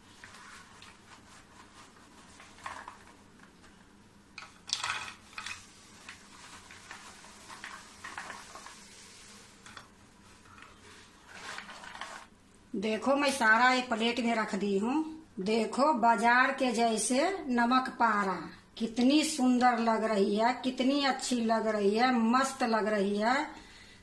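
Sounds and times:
crisp snacks clattering onto a plate: 4.4 - 5.7.

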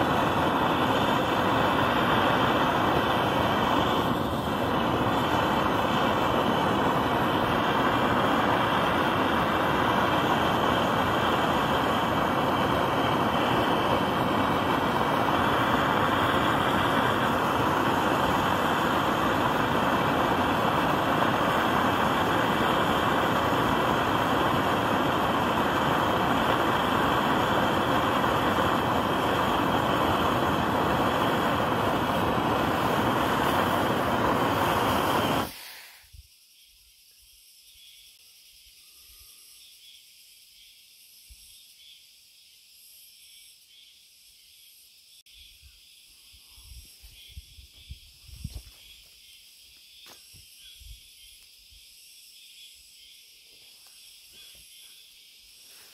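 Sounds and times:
gas torch burner hissing: 0.0 - 36.3, 55.4 - 55.9
insects trilling: 0.0 - 55.9.

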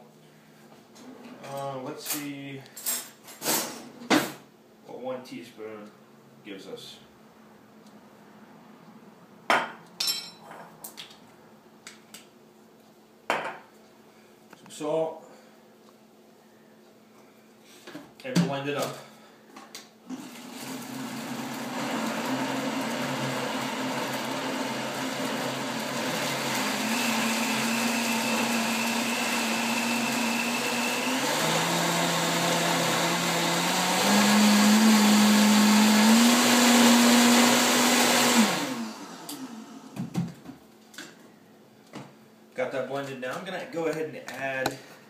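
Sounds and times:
blender motor: 20.1 - 40.0.

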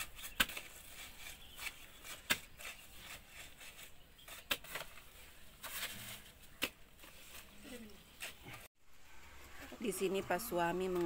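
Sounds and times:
hoe chopping and scraping mortar: 0.0 - 8.7.

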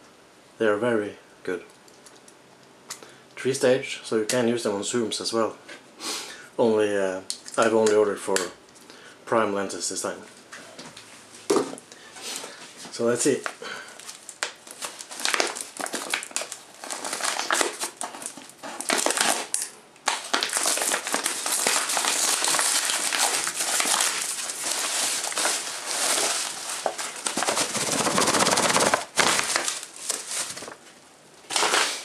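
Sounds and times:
paper envelope crinkling: 14.0 - 32.0.

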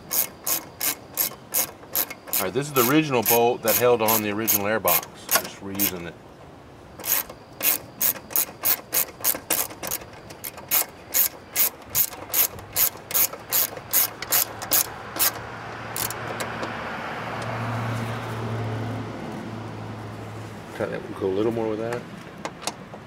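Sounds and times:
ratchet wrench clicking: 0.0 - 6.0, 7.0 - 16.7.

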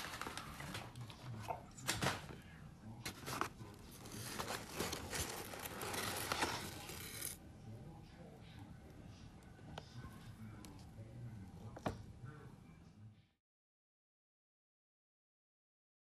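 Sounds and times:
paper and cloth bag rustling: 3.1 - 7.4.

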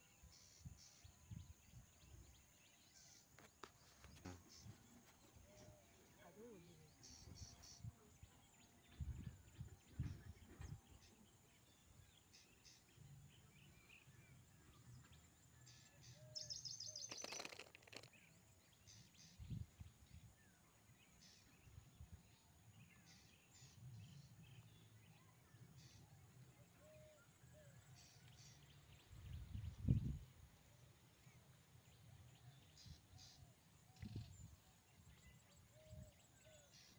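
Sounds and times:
bird chirps: 0.0 - 20.2.

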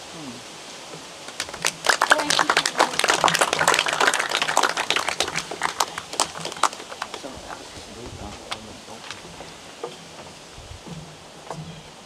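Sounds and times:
people applauding: 1.3 - 7.8.

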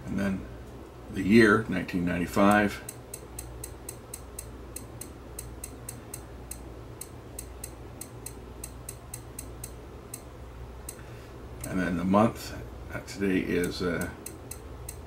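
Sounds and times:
electronic clock beeper ticks: 2.9 - 10.3.

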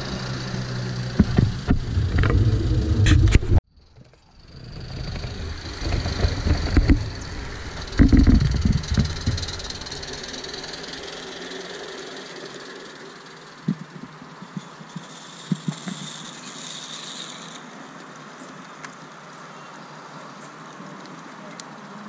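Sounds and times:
model train rumbling on track: 4.4 - 13.7.

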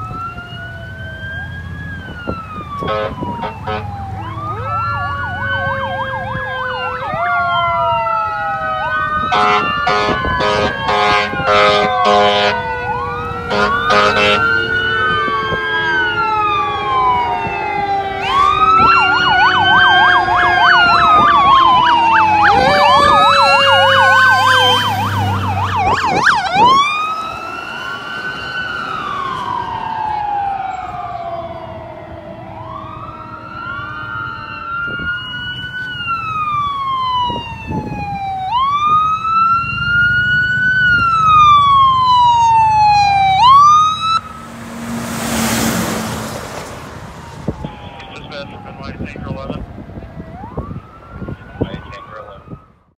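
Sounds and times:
ambulance wail siren: 0.0 - 52.9
fire engine sirens wailing: 0.0 - 52.9
low engine rumble: 41.1 - 52.6.

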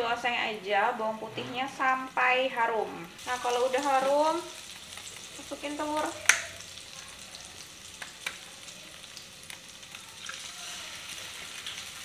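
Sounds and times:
garlic sizzling in fat: 0.0 - 12.0
egg cracking tap: 6.2 - 6.6, 7.9 - 8.5.

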